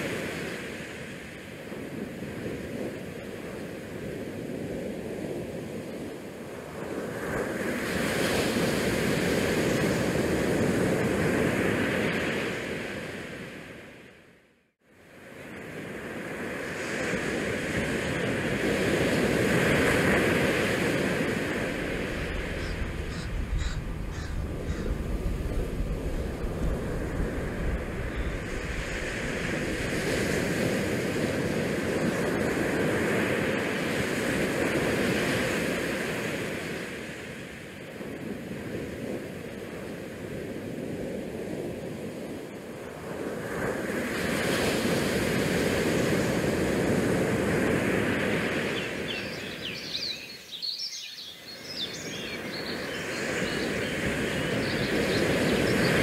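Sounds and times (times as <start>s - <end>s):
wind buffeting microphone: 16.7s - 33.3s
ship wake water rushing: 20.0s - 32.0s.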